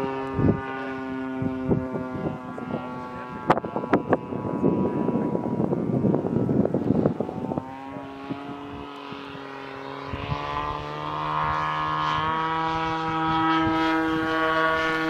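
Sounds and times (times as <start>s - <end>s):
model airplane engine droning: 0.0s - 15.0s.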